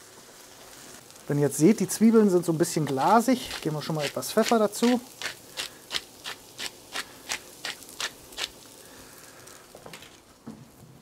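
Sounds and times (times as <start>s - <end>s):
pepper mill grinding: 2.6s - 8.7s.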